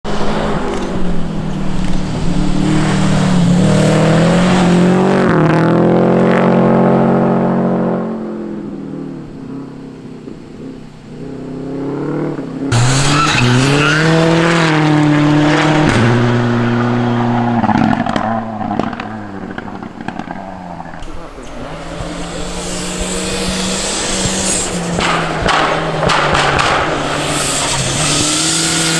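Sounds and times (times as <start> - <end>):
rally car engine revving past: 11.6 - 28.9.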